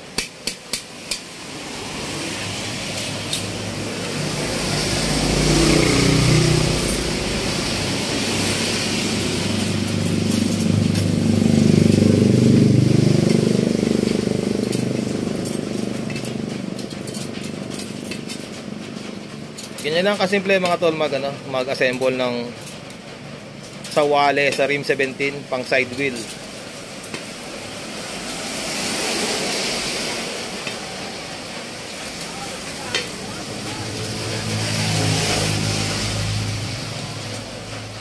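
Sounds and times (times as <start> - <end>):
motor vehicle engine running: 1.5 - 19.8.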